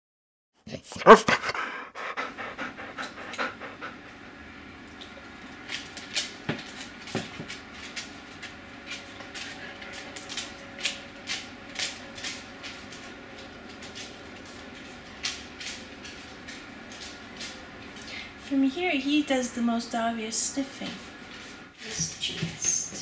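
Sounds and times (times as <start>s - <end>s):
dog sniffing and breathing: 0.8s - 4.1s.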